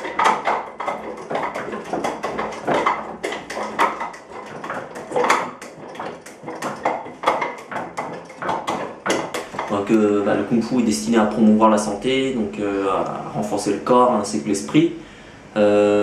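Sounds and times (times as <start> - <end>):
wooden clacks on training dummy: 0.0 - 9.9.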